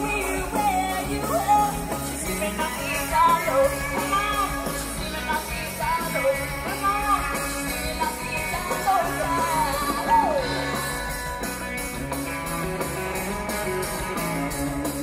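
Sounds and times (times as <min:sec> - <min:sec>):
person singing: 0:00.0 - 0:11.2
live rock and roll band: 0:00.0 - 0:15.0.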